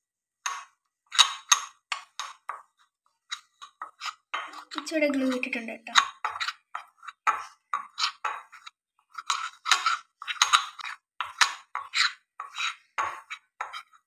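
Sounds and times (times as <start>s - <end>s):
fork scraping dough in bowl: 0.4s - 14.0s.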